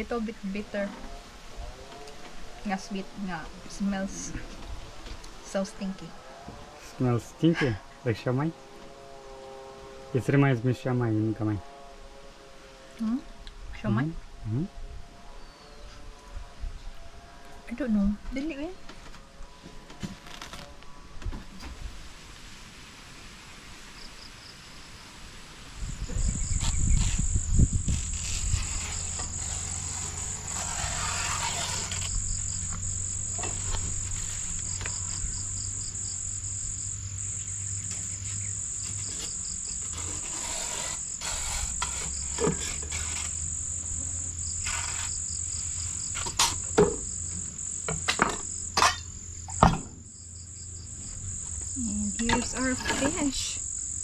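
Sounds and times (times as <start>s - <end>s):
insects trilling: 23.7s - 54.0s
wind rumble on microphone: 25.6s - 30.0s.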